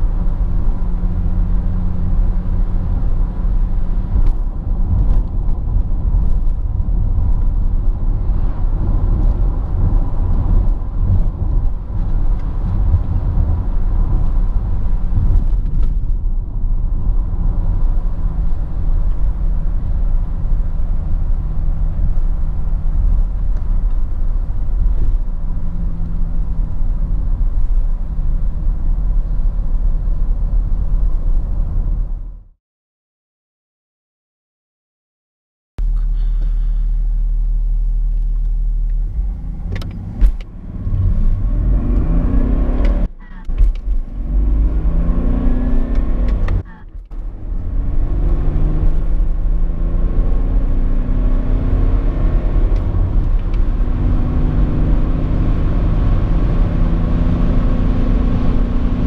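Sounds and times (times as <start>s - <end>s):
diesel engine hum: 0.0s - 32.5s, 35.8s - 59.0s
tyre and road noise: 0.0s - 32.5s, 35.8s - 59.0s.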